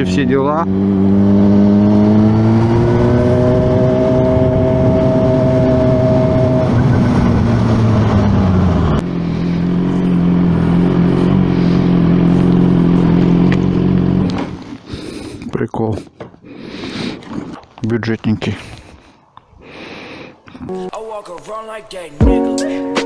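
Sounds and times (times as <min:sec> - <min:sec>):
motorcycle engine running: 0:00.0 - 0:14.8.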